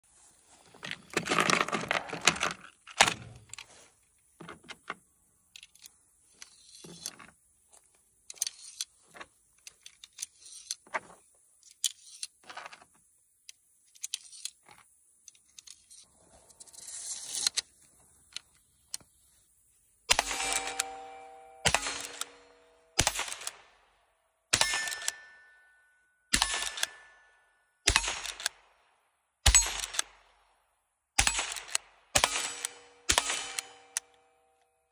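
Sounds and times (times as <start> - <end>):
cartridges clicking and clinking: 4.4 - 7.4, 8.3 - 8.9, 11.6 - 12.4, 20.1 - 23.8, 24.5 - 25.7, 26.3 - 28.7, 29.4 - 30.3, 31.2 - 34.7.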